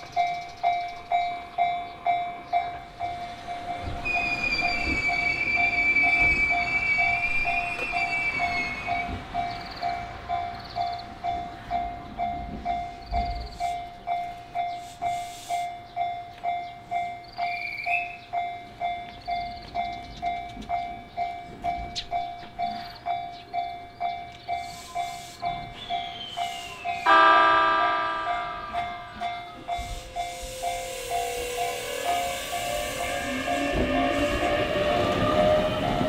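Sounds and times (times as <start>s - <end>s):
railway crossing warning bell: 0.0s - 36.0s
train running noise: 0.0s - 36.0s
train horn: 26.4s - 36.0s.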